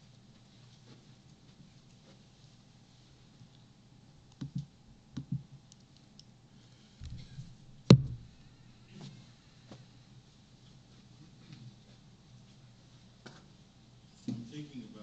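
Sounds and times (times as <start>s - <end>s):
faint room hum: 0.0s - 15.0s
sharp loud knock: 7.9s - 8.2s.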